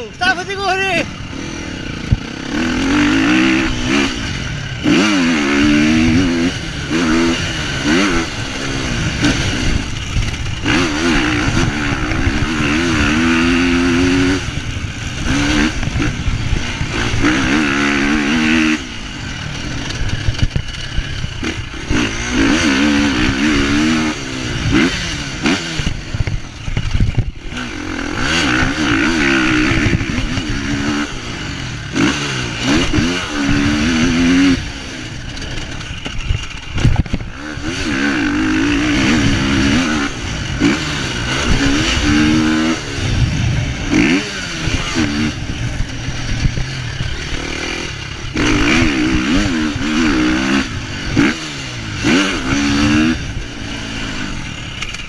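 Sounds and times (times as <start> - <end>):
motocross bike engine revving: 0.0 - 55.0.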